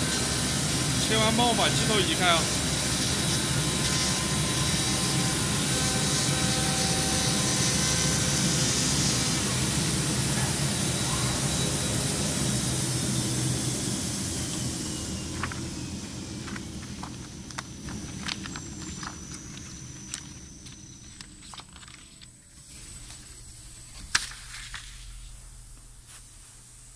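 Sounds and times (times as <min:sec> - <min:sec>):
cutting machine running: 0:00.0 - 0:22.0
paper rustling: 0:16.4 - 0:25.2.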